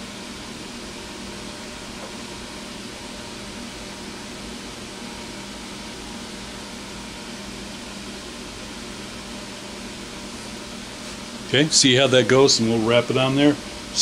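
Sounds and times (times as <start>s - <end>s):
fan-like room hum and hiss: 0.0s - 14.0s.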